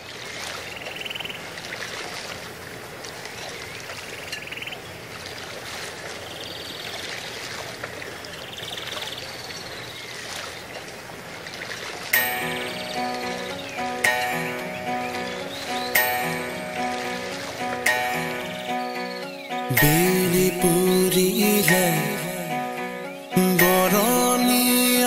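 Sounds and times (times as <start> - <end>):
trilled bird call: 12.2 - 21.7.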